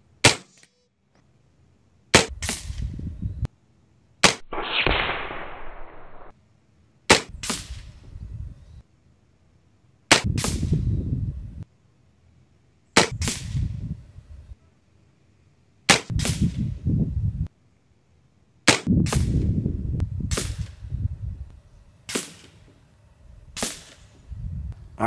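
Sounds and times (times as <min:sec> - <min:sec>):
air rifle shots: 0:04.2 - 0:06.3, 0:07.1 - 0:07.9, 0:20.3 - 0:20.8, 0:22.1 - 0:22.6, 0:23.6 - 0:24.1
second crack after shot: 0:04.2 - 0:06.3, 0:22.1 - 0:22.7, 0:23.6 - 0:24.1.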